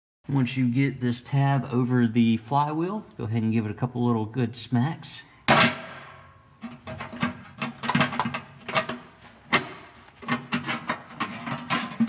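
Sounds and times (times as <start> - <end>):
metal cover clacking and scraping: 5.5 - 12.0.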